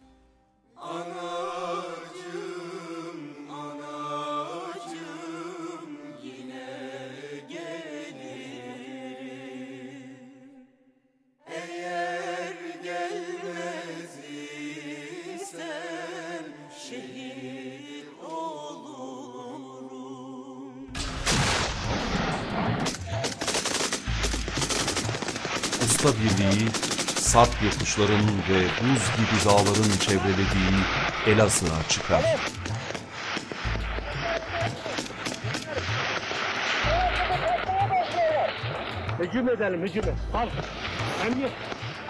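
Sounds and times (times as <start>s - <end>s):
machine-gun fire: 21.0s - 37.7s.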